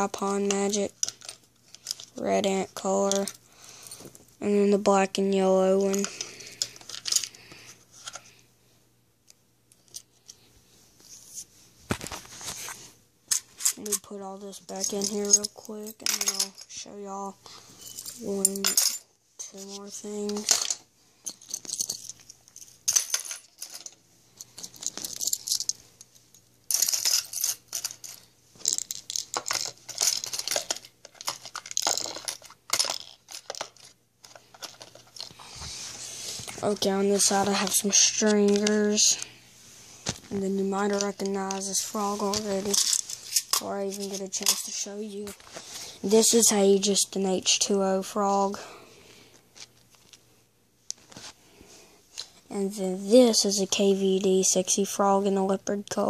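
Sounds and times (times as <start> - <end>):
fishing tackle clicking and rustling: 26.7 - 35.4.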